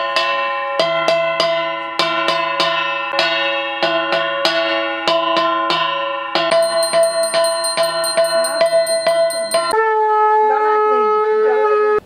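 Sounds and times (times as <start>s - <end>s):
hand bell ringing: 6.5s - 9.8s.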